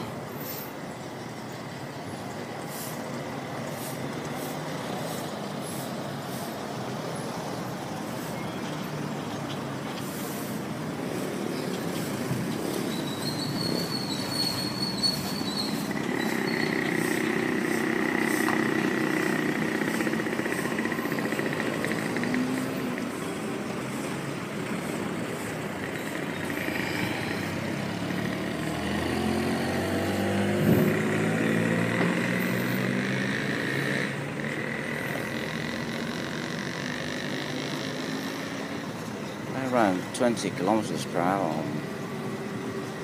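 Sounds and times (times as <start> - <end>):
engine revving up: 13.7 - 39.0.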